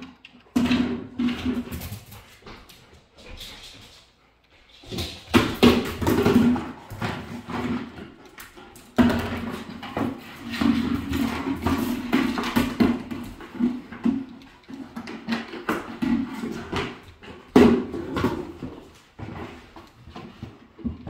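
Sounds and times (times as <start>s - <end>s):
plastic bucket scraping on wood floor: 4.9s - 21.0s.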